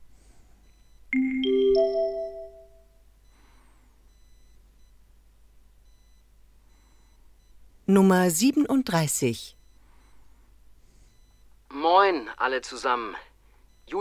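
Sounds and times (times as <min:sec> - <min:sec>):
three-note rising chime: 0:01.2 - 0:02.8.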